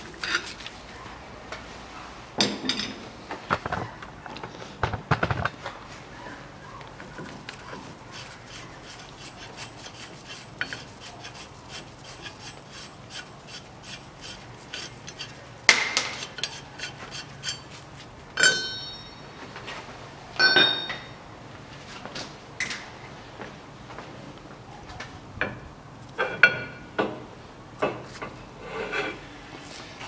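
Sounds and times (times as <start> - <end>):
ringing metal clanks: 18.4 - 19.5, 20.4 - 21.2.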